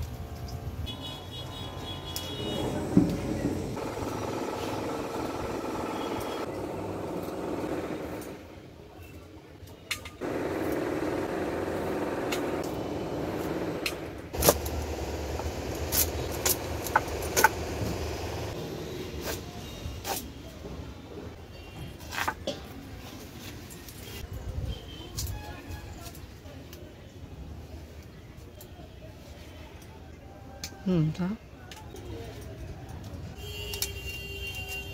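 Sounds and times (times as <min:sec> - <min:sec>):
stems snapping by hand: 0:13.8 - 0:18.3.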